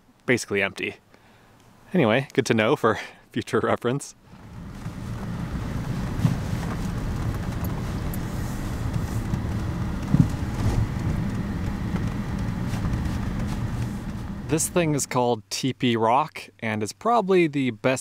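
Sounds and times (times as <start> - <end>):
car engine and tyres rumbling: 4.2 - 15.2.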